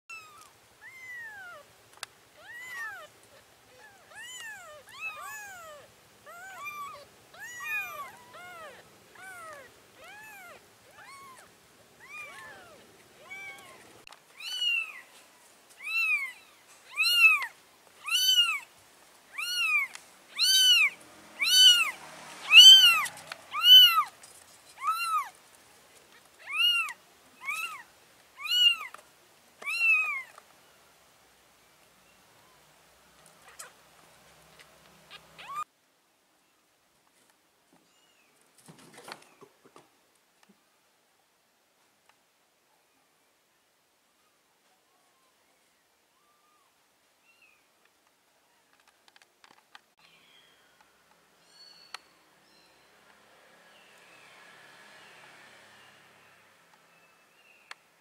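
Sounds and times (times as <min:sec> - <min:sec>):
kittens mewing: 0:02.4 - 0:15.0, 0:15.8 - 0:18.7, 0:19.3 - 0:25.4, 0:26.2 - 0:29.0, 0:29.6 - 0:30.4, 0:35.1 - 0:35.7.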